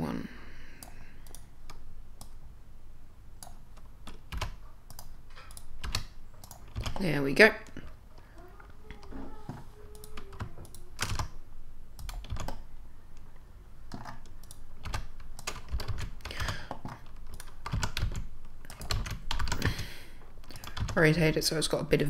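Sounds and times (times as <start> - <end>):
keyboard and mouse clicking: 0.8 - 2.4, 3.4 - 8.0, 9.9 - 13.3, 13.9 - 21.0.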